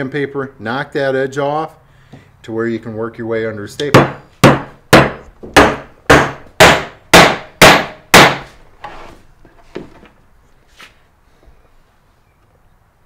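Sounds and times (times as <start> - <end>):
hammer striking nails into wood: 3.9 - 8.5.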